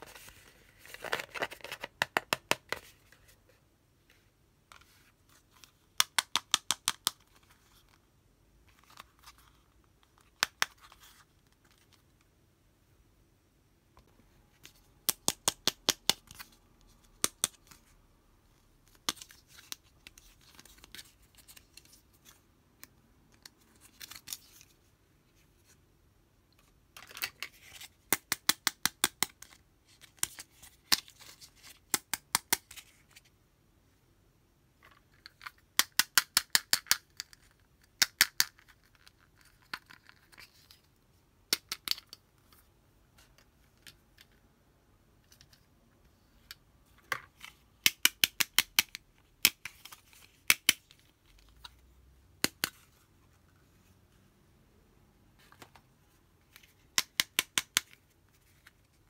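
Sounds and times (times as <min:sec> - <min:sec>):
plastic pieces clicking under fingernails: 0:06.0 - 0:07.4, 0:14.7 - 0:16.5, 0:17.1 - 0:17.8, 0:28.1 - 0:31.1, 0:34.9 - 0:40.3, 0:41.5 - 0:42.2, 0:47.2 - 0:51.5, 0:56.6 - 0:58.0.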